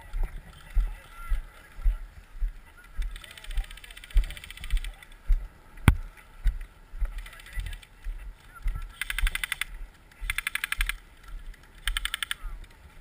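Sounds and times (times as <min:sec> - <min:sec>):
rapid airsoft gun fire: 0:09.0 - 0:11.0, 0:11.8 - 0:12.4.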